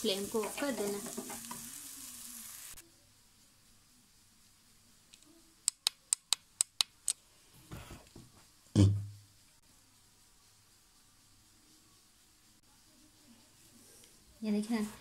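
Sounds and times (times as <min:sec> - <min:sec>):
frying sizzle from pan: 0:00.0 - 0:02.8.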